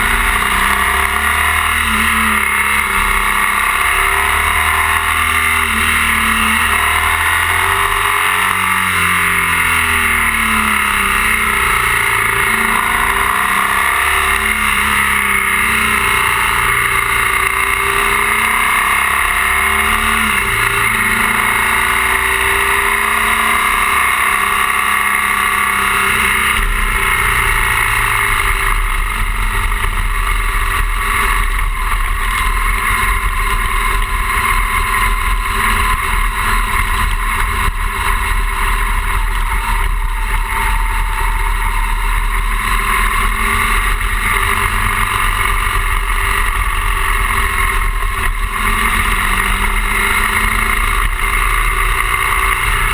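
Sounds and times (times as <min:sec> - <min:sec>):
motorcycle engine revving: 0:00.0 - 0:52.9
wind and road noise: 0:00.0 - 0:52.9
deep low rumble: 0:26.3 - 0:52.9.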